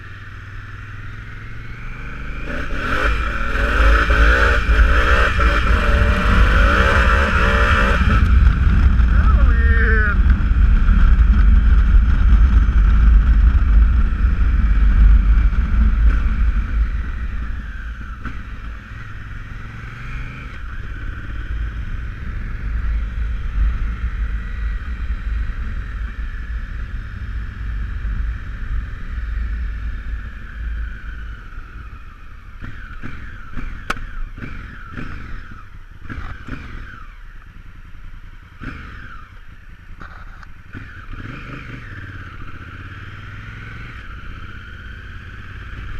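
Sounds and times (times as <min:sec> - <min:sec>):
motorcycle engine running: 0:00.0 - 0:45.9
wind rushing over microphone: 0:02.4 - 0:18.6.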